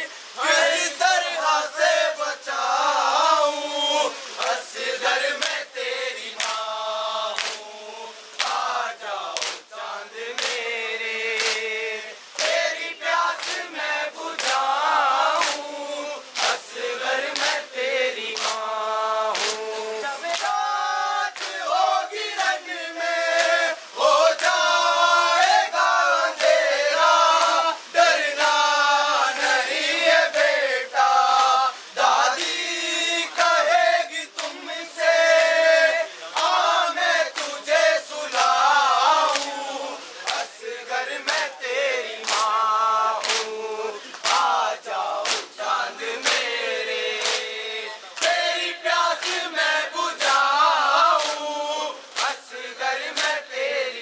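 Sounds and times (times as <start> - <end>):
men chanting in chorus: 0.0 - 54.0
chest-beating slaps: 11.4 - 11.6, 42.2 - 42.6, 43.2 - 44.5.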